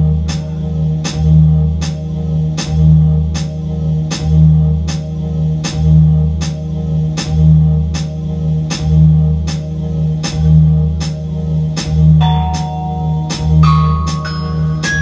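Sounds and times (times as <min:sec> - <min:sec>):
low bass: 0:00.0 - 0:15.0
steady held tones: 0:12.2 - 0:15.0.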